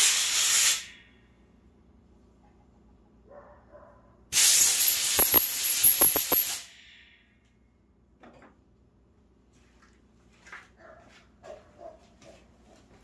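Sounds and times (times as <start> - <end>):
compressed air hissing: 0.0 - 1.0, 4.4 - 6.6.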